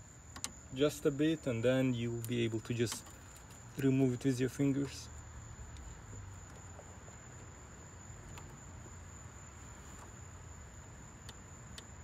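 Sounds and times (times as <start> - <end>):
background hum: 0.0 - 12.0
faint ticks: 11.2 - 11.9.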